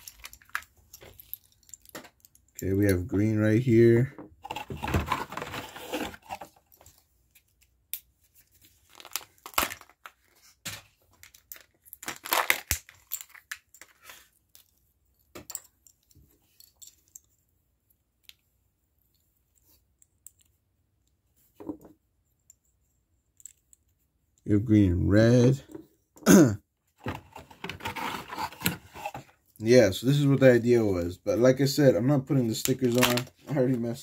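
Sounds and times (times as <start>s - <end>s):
plastic wrapper tearing and crinkling: 0.0s - 0.7s, 8.8s - 10.2s, 11.2s - 14.2s, 32.6s - 33.4s.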